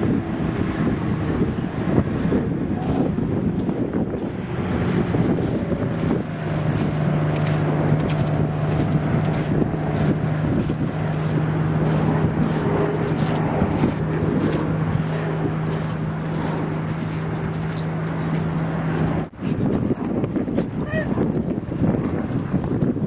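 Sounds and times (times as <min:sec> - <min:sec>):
low engine-like hum: 0:00.0 - 0:23.0
rumbling background: 0:00.0 - 0:23.0.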